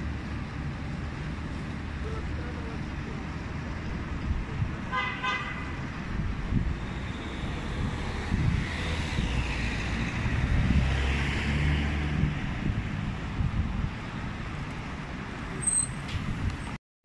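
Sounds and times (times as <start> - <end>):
passing cars: 0.0 - 16.8
car horn toot: 4.9 - 5.7.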